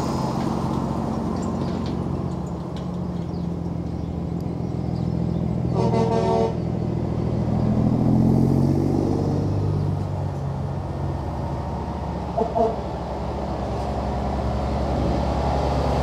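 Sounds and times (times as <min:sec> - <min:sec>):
diesel truck engines running: 0:00.0 - 0:16.0
truck driving past: 0:00.0 - 0:16.0
truck horn blast: 0:05.7 - 0:06.7, 0:12.3 - 0:12.9.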